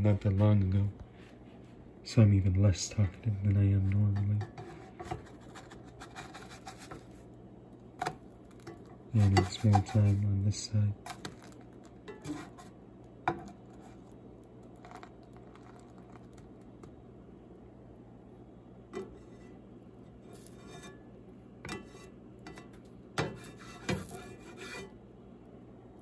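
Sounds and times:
faint steady hum: 0:00.0 - 0:26.0
plastic spatula scraping frying pan: 0:04.5 - 0:07.1, 0:09.2 - 0:10.2, 0:12.1 - 0:12.7, 0:23.3 - 0:24.9.

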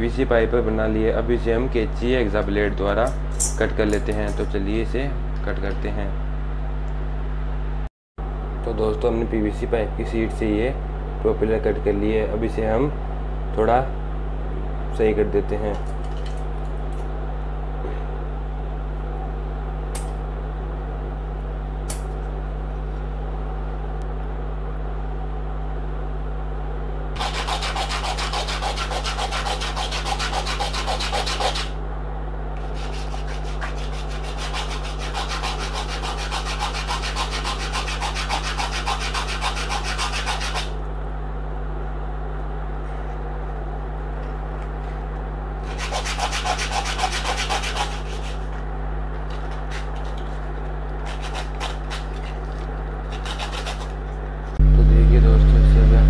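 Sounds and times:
steady low hum: 0:00.0 - 0:56.0
hand sanding on sandpaper: 0:27.2 - 0:31.8, 0:32.6 - 0:40.8, 0:45.6 - 0:48.6, 0:49.3 - 0:54.0.

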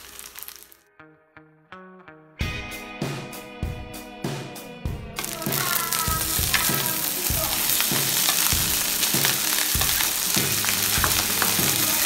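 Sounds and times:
rice sizzling in wok: 0:00.0 - 0:00.8, 0:05.2 - 0:12.0
wooden spatula stirring in wok: 0:05.2 - 0:12.0.

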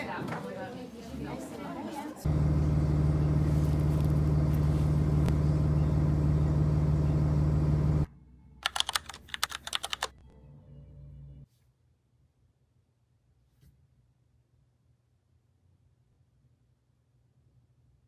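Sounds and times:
vehicle cabin engine and road drone: 0:02.3 - 0:08.1
keyboard typing clicks: 0:08.6 - 0:10.1.

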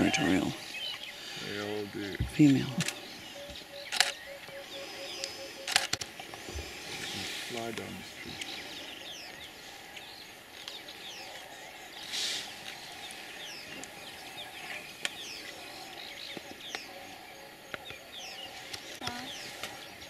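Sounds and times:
wild birds chirping: 0:00.0 - 0:20.0
sharp clicks: 0:02.4 - 0:04.2, 0:05.2 - 0:06.1
rustle: 0:03.9 - 0:20.0.

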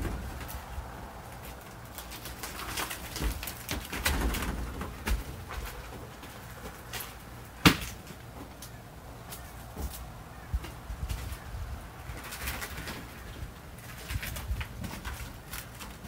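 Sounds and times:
footsteps on trailer floor: 0:09.3 - 0:11.4.

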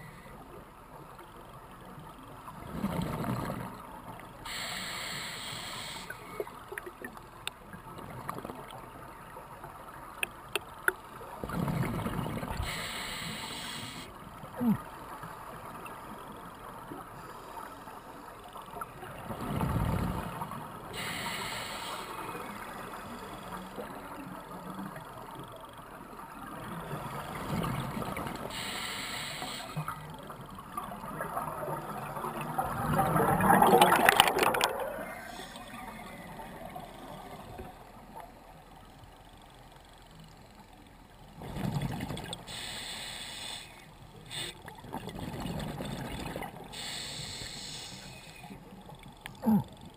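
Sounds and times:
scuba regulator inhalation hiss: 0:04.5 - 0:06.3, 0:12.6 - 0:14.1, 0:21.0 - 0:22.3, 0:28.5 - 0:29.9, 0:42.5 - 0:44.6, 0:46.7 - 0:48.5
exhaled bubbles rumbling: 0:30.9 - 0:37.4, 0:44.8 - 0:46.7.

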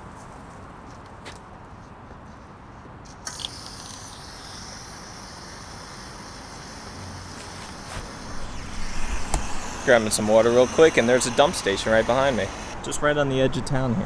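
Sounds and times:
water hissing from hose: 0:03.3 - 0:12.8.

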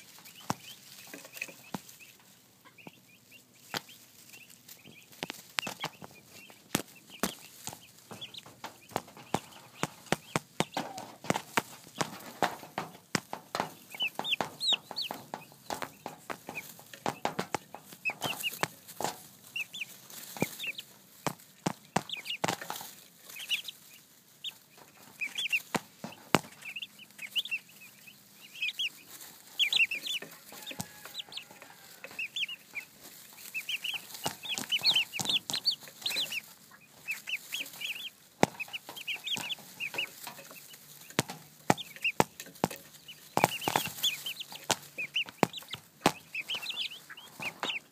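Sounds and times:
turkey poults peeping: 0:00.0 - 0:47.9
sharp taps near microphone: 0:05.1 - 0:19.3, 0:21.2 - 0:22.9, 0:24.8 - 0:27.3, 0:33.8 - 0:36.4, 0:38.4 - 0:47.9.

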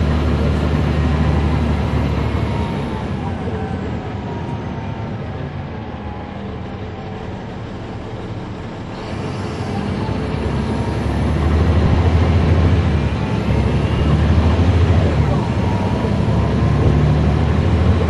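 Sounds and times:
bus diesel engine drone: 0:00.0 - 0:18.0.

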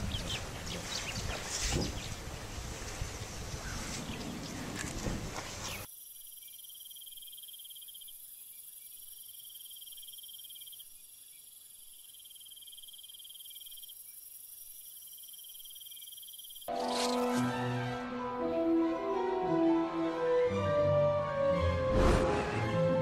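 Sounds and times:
crickets chirping: 0:05.7 - 0:17.2.

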